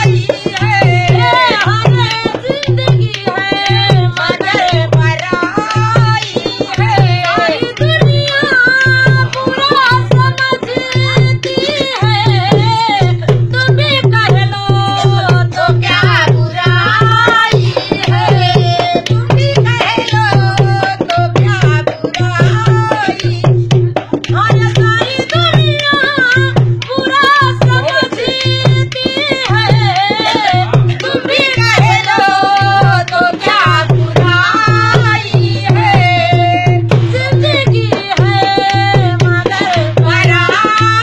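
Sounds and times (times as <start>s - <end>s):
barrel drum beat: 0.0s - 41.0s
woman singing folk song: 0.0s - 41.0s.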